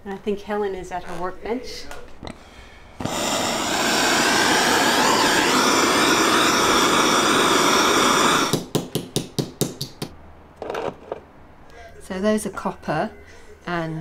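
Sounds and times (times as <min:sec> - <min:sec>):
blowtorch flame hissing: 0:03.0 - 0:08.7
small hammer tapping: 0:08.5 - 0:10.2.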